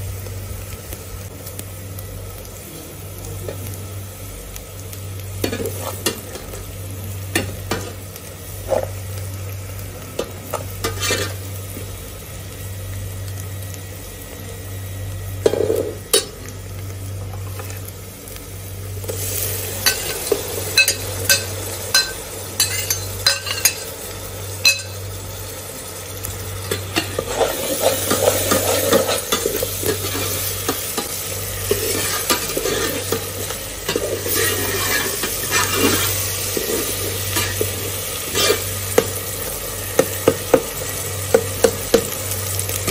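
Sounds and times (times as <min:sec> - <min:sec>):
food sizzling in oil: 0:00.0 - 0:42.9
metal ladle scraping pot: 0:33.9 - 0:37.6.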